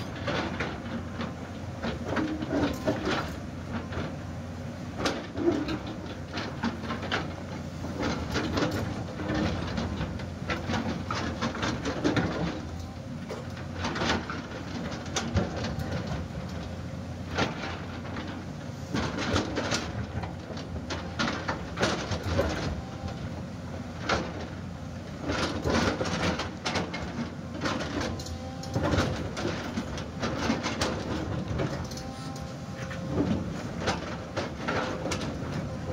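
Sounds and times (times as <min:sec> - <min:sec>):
excavator engine hum: 0:00.0 - 0:35.9.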